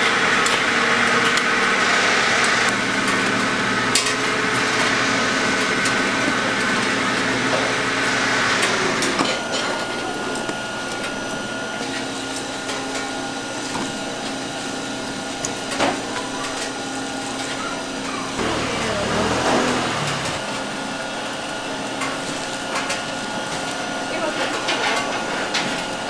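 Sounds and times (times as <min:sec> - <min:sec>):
machinery humming: 0:00.0 - 0:26.0.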